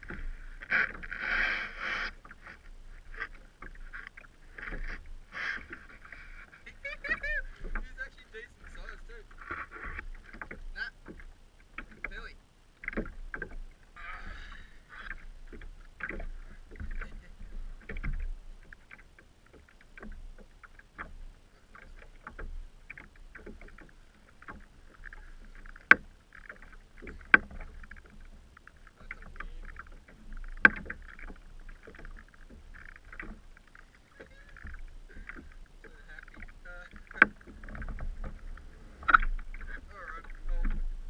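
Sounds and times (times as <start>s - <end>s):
water lapping against kayak hull: 0.0s - 41.0s.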